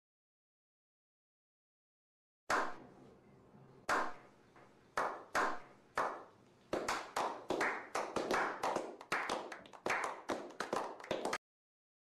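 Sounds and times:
group clapping: 3.9 - 4.2, 5.0 - 11.4.

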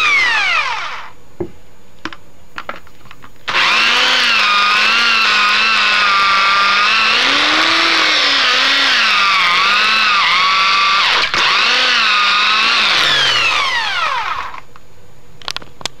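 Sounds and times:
electric drill cutting coconut shell: 0.0 - 1.2, 3.5 - 14.7.

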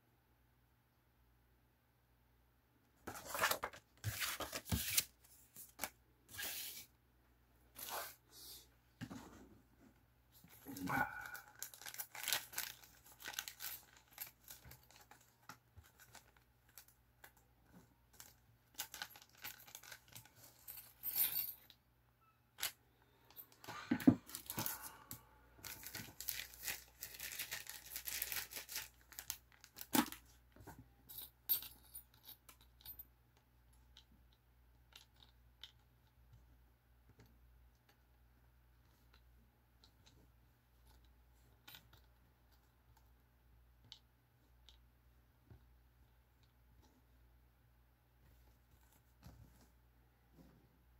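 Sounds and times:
plastic bag crinkling: 10.6 - 15.3, 25.6 - 30.1.

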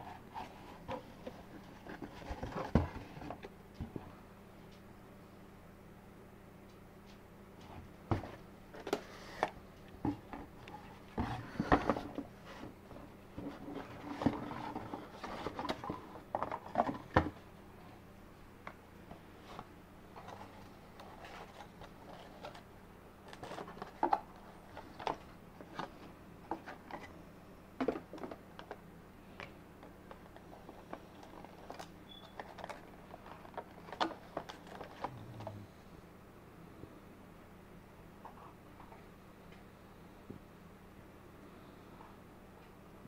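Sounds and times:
packaging rustling: 20.2 - 26.0, 30.1 - 35.1.

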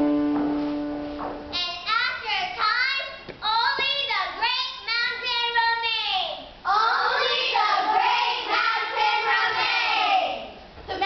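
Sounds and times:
children singing: 6.7 - 10.3.

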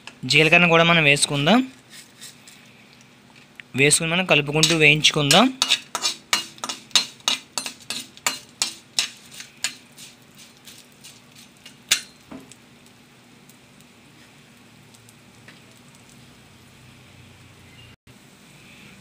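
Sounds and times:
oil sizzling: 0.0 - 19.0
metal ladle clinking and scraping: 4.6 - 12.3.

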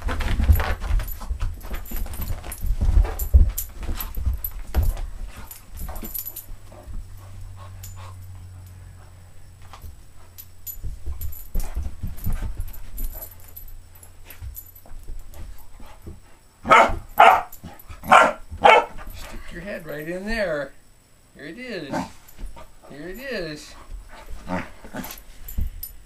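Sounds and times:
dog scrabbling on carpet: 0.0 - 8.1, 9.6 - 13.5, 23.8 - 25.7
knocks and rustles: 0.0 - 20.5, 22.0 - 26.0.

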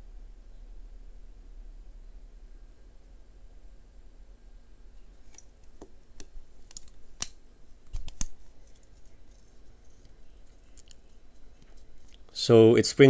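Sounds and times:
multi-tool metallic clicks and snaps: 5.2 - 11.0.

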